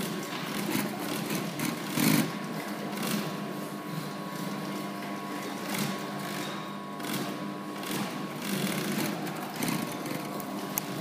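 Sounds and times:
sewing machine stitching: 0:00.0 - 0:02.3, 0:07.0 - 0:10.3
motor hum: 0:00.0 - 0:11.0.

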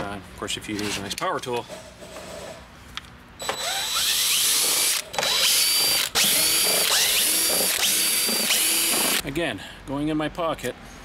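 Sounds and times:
cordless drill motor whining: 0:03.4 - 0:09.2.

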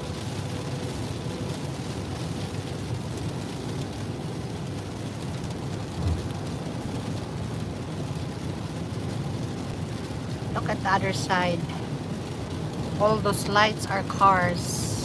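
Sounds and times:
rain on car: 0:00.0 - 0:15.0
tyres on wet road: 0:00.0 - 0:15.0
low thump: 0:06.0 - 0:06.3.

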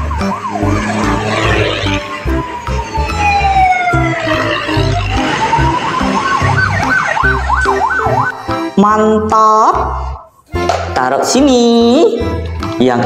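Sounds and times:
siren wailing and whooping: 0:00.0 - 0:08.4
background music with steady beat: 0:00.0 - 0:13.0.

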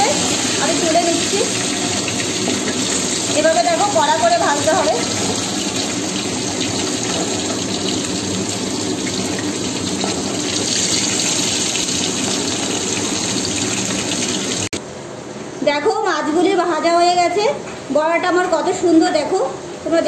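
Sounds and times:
hot oil sizzling: 0:00.0 - 0:14.8.

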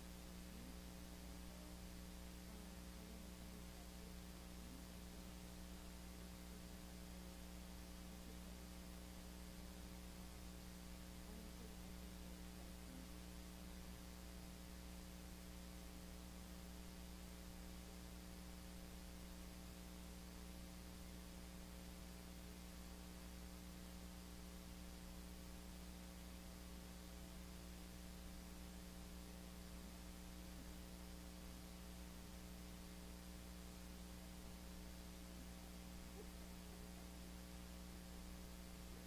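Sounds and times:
electrical hum: 0:00.0 - 0:39.0
faint hiss: 0:00.0 - 0:39.0.

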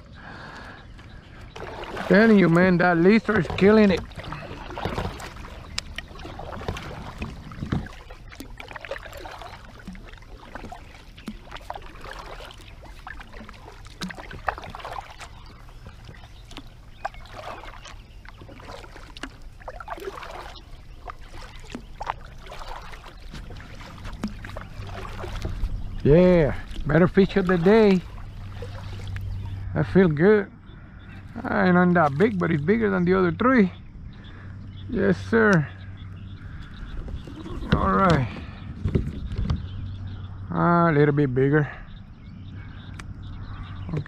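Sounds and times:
paddle pulling through water: 0:00.0 - 0:41.1
water splashes and drips: 0:00.4 - 0:30.1, 0:31.3 - 0:33.0.

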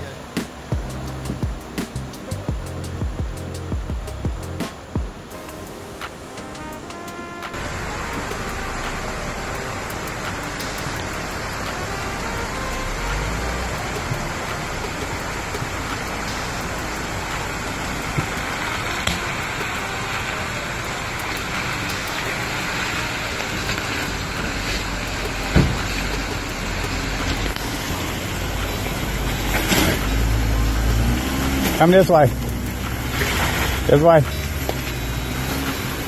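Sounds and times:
water splashing: 0:00.0 - 0:36.0
car engine running: 0:07.5 - 0:36.0
thump: 0:25.5 - 0:25.9.

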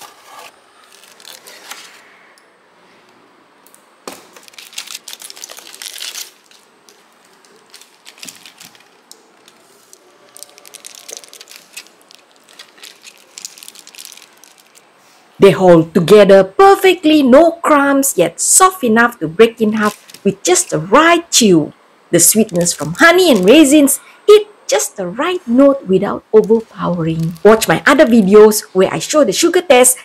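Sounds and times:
aluminium foil crinkling: 0:00.0 - 0:02.1, 0:04.1 - 0:15.2, 0:19.8 - 0:20.2, 0:22.3 - 0:23.7, 0:26.4 - 0:28.3.

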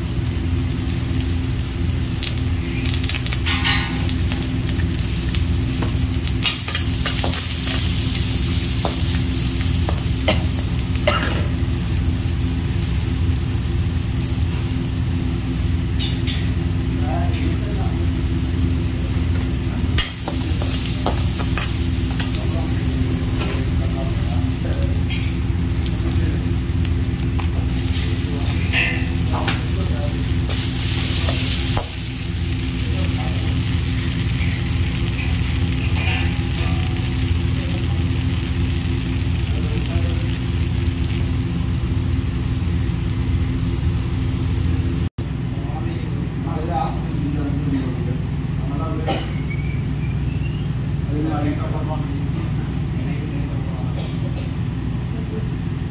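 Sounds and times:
onions sizzling in oil: 0:00.0 - 0:17.0, 0:18.0 - 0:45.1
steady low hum: 0:00.0 - 0:55.9.

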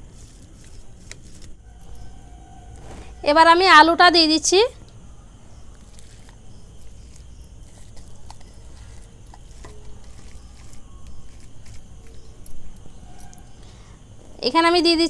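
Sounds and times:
squishing of mashed potato: 0:05.6 - 0:13.6.

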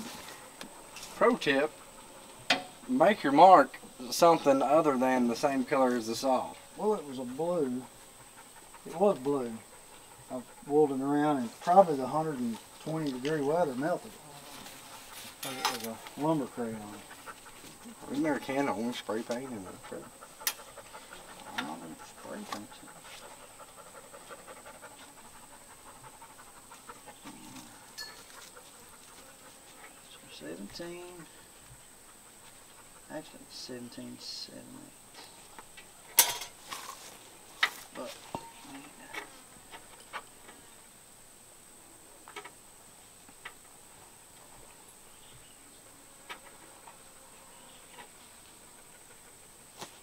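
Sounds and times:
insects droning: 0:00.0 - 0:50.0
rapid rhythmic panting: 0:00.4 - 0:03.3, 0:06.6 - 0:12.8, 0:16.2 - 0:30.5, 0:31.2 - 0:33.7.

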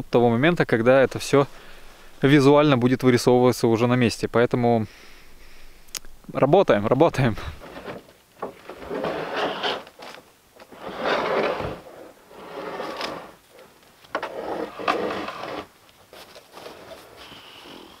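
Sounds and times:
roofing sheet scraping through snow: 0:08.8 - 0:10.0, 0:10.7 - 0:13.6, 0:14.3 - 0:17.8.

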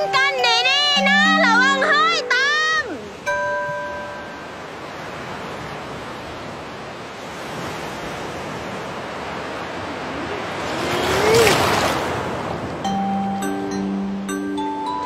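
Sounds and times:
surf washing up beach: 0:00.0 - 0:13.4.

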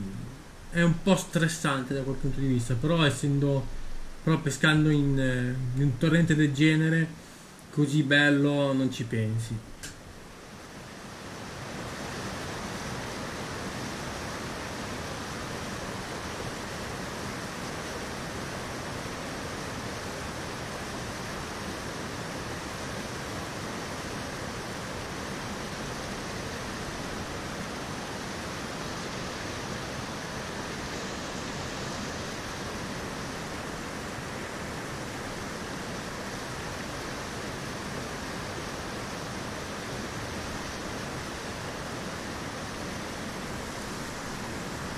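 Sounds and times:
water rushing over boulders: 0:09.6 - 0:44.9.

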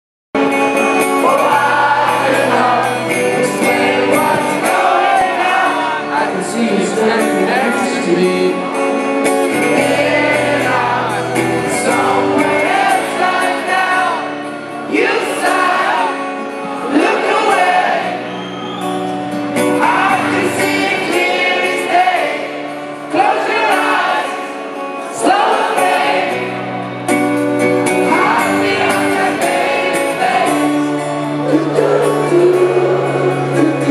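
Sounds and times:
rock band playing live: 0:00.4 - 0:33.9
man singing: 0:01.1 - 0:12.7, 0:31.4 - 0:33.9.

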